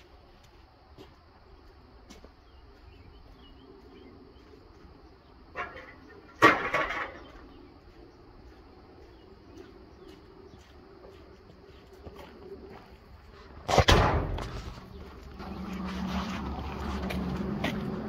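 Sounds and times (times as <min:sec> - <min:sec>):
steel plate clanking on gravel: 0:05.5 - 0:07.6
loud metal crash: 0:13.7 - 0:14.7.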